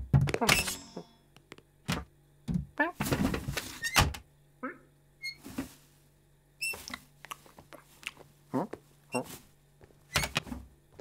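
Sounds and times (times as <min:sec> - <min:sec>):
thumps and knocks in a box: 0:00.0 - 0:00.5.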